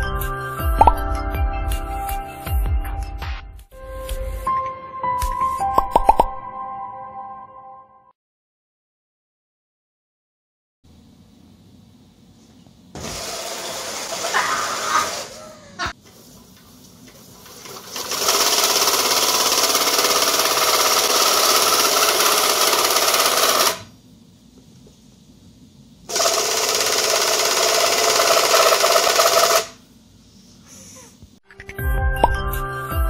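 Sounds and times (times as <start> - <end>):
cordless drill spinning mixer: 17.9 - 23.9, 26.1 - 29.8.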